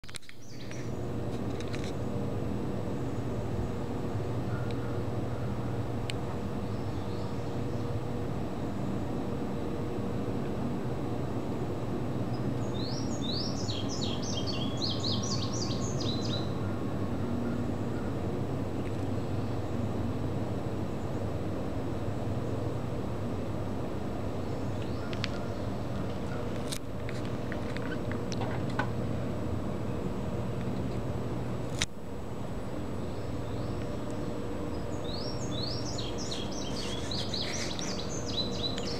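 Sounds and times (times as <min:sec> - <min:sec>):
bird chirping song: 0:00.2 - 0:01.0, 0:06.5 - 0:08.1, 0:12.3 - 0:18.2, 0:24.4 - 0:26.5, 0:33.0 - 0:38.9.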